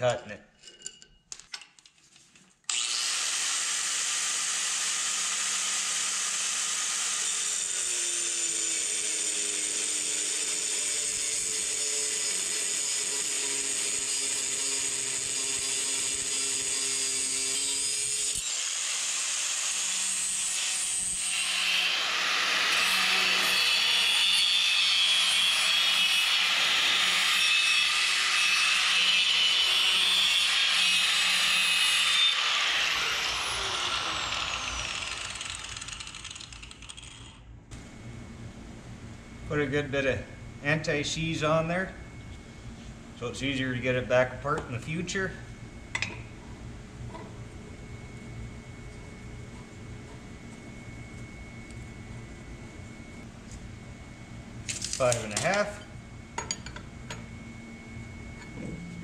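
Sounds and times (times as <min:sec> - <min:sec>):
angle grinder cutting steel: 0:02.7 - 0:37.4.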